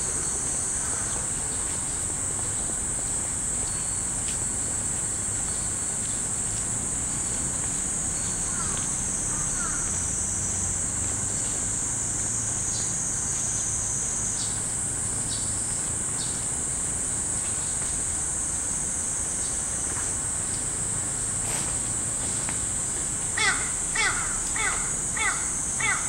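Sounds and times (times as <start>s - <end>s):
high insect drone: 0.0s - 26.0s
crow cawing: 8.5s - 9.9s, 23.4s - 26.0s.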